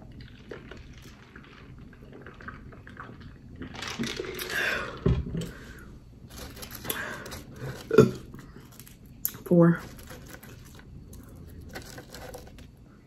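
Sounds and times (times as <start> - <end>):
fries handled on a plate: 6.3 - 12.7.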